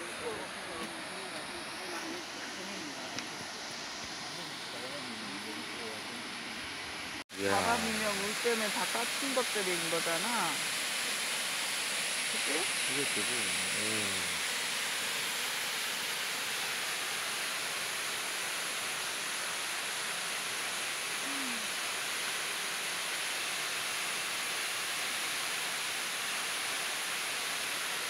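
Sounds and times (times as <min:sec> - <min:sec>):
waterfall rushing: 0:07.3 - 0:28.0.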